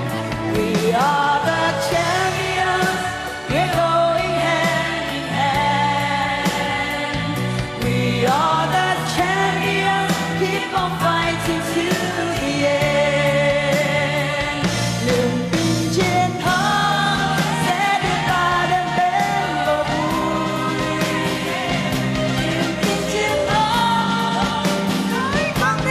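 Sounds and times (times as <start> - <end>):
live pop band: 0.0 - 25.9
female vocal singing: 0.5 - 25.9.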